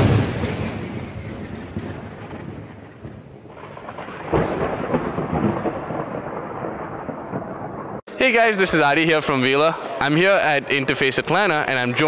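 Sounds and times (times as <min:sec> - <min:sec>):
crackling peal of thunder: 0:00.0 - 0:08.0
thunder rumbling: 0:00.0 - 0:08.0.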